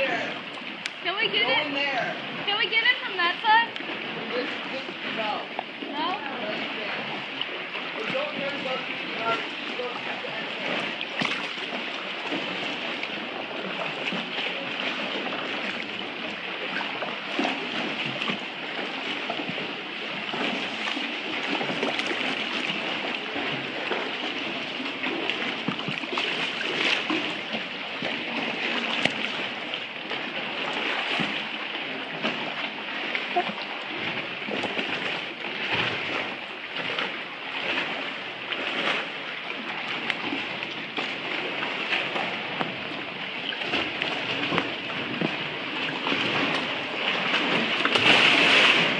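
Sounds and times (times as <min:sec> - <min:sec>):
paddle strokes in water: 0:00.0 - 0:48.9
water lapping around hull: 0:00.0 - 0:48.9
splash or knock: 0:10.6 - 0:12.8, 0:43.6 - 0:48.9.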